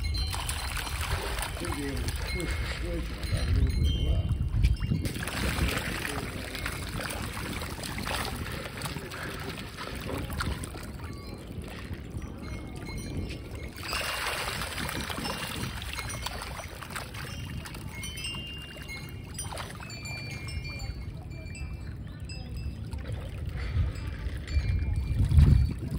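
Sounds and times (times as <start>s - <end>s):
fish splashing at water surface: 0.0s - 3.8s, 4.7s - 12.0s, 13.4s - 20.6s.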